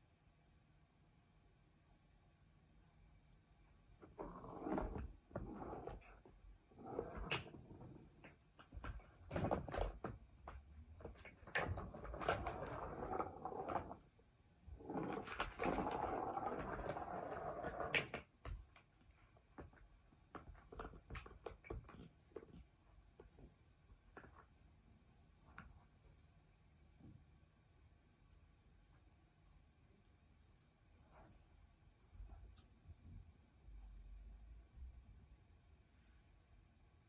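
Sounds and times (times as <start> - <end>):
paws knocking plastic: 4.0 - 14.1, 14.8 - 24.5
ball rolling around plastic track: 4.0 - 19.0.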